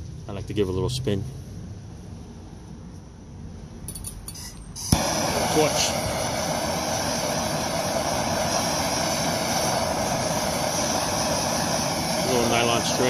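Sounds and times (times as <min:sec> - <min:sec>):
blowtorch hissing: 0:04.7 - 0:13.0.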